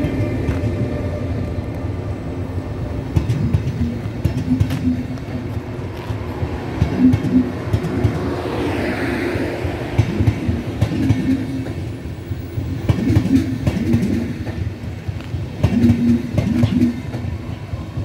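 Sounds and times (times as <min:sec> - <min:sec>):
train rolling rumble: 0:00.0 - 0:18.0
train wheels knocking over rail joints: 0:03.0 - 0:05.6, 0:06.4 - 0:08.4, 0:09.9 - 0:18.0.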